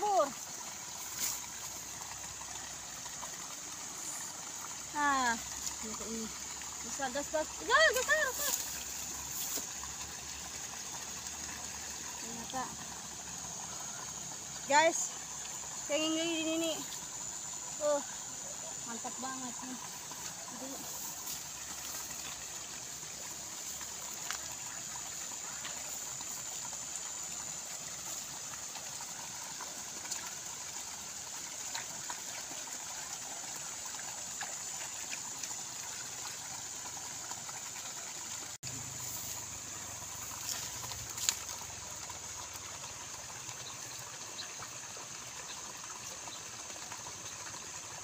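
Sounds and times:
water trickling in ditch: 0.0s - 48.0s
splashes and clicks in mud: 40.2s - 43.8s.

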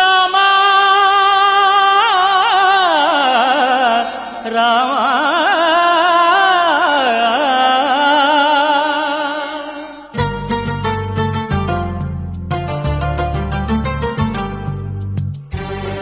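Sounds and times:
ornamented devotional singing: 0.0s - 10.2s
low drone: 15.5s - 16.0s.

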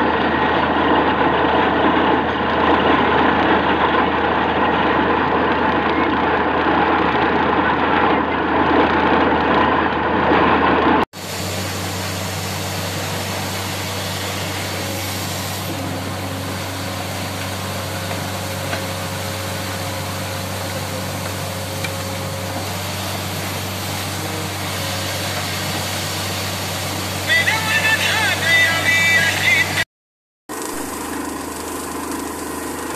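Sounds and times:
drilling rig engine droning: 0.0s - 29.9s
water and slurry rushing: 11.2s - 29.8s.

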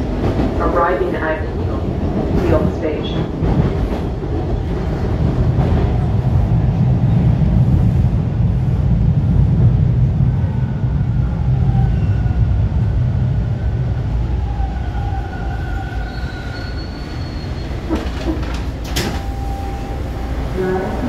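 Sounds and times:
subway train rumble: 0.0s - 21.0s
faint brake squeals: 16.0s - 18.2s.

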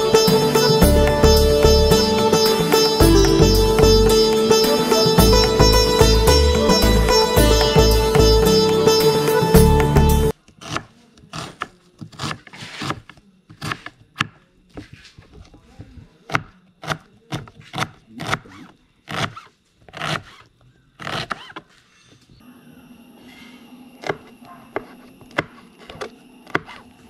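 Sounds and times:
knife chopping on cutting board: 10.6s - 14.9s.

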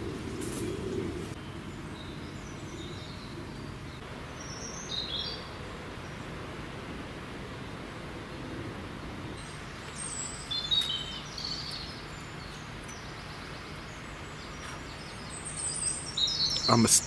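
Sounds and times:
outdoor background hiss: 0.0s - 17.0s
high bird chirps: 9.4s - 17.0s.

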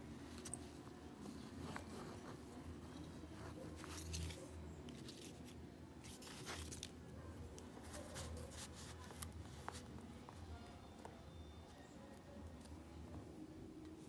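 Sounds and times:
paper shifting: 0.3s - 10.0s.

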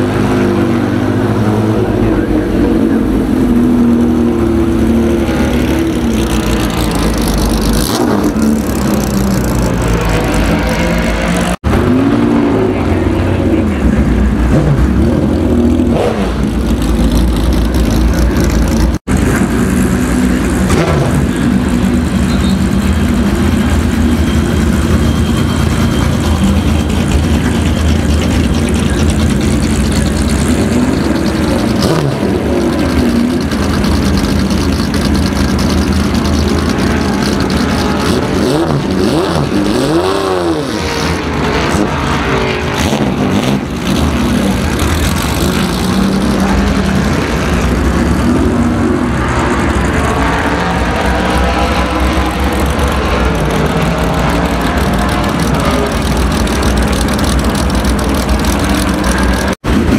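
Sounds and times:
race car engine running loudly: 0.0s - 59.9s
second race car engine: 0.0s - 59.9s.

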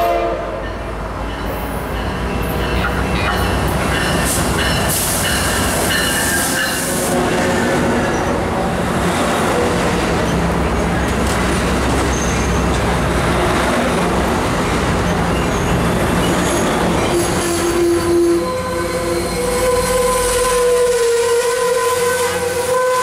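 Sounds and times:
train wheels rumbling on rail: 0.0s - 23.0s.

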